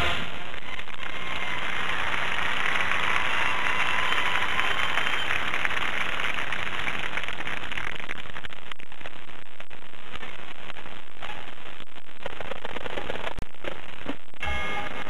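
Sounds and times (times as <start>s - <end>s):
crowd applause: 0.6s - 8.4s.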